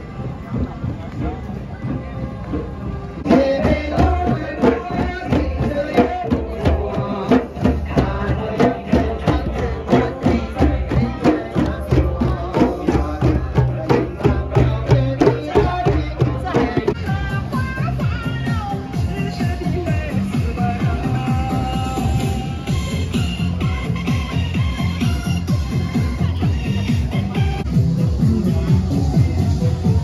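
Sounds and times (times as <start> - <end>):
djembe hand drums: 2.6 - 17.9.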